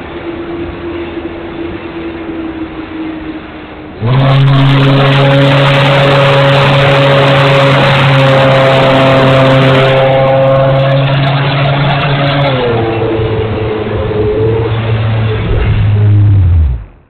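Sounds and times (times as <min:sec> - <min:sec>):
air rush: 0:12.8 - 0:17.0.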